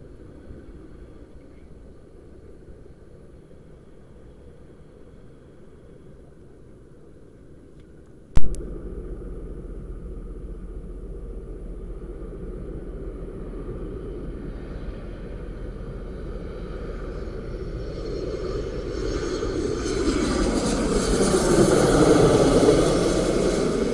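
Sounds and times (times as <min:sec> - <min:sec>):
sharp click: 0:08.4 - 0:08.6
jet engines rumbling: 0:08.4 - 0:23.9.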